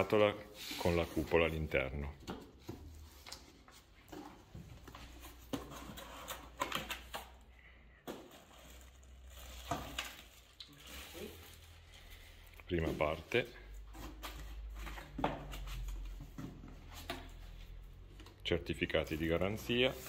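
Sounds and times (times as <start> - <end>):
plastic wrap rustling: 3.0 - 13.4.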